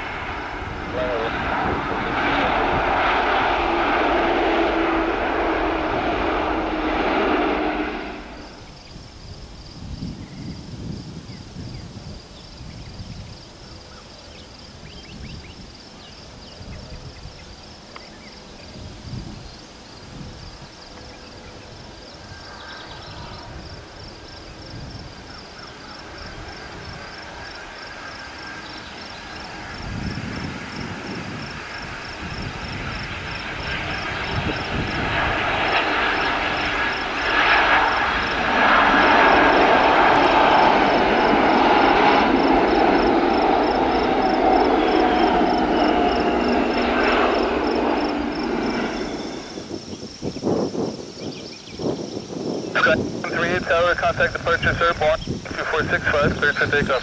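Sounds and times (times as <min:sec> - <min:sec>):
faint jet engines on approach: 0:00.0 - 0:57.0
jet engines at takeoff thrust: 0:00.0 - 0:57.0
faint whine: 0:25.8 - 0:50.2, 0:52.8 - 0:57.0.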